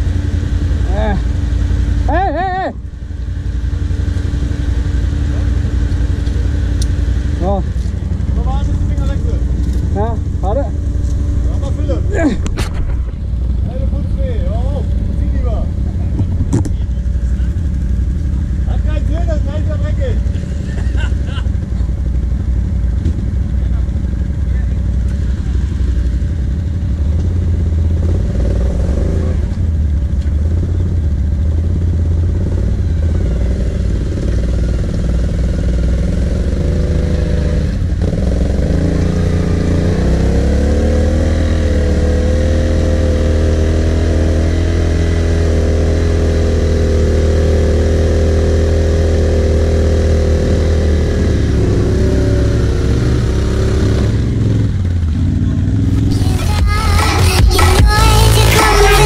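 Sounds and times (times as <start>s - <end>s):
quad engines running: 0.0s - 59.0s
engine revving up: 36.2s - 59.0s.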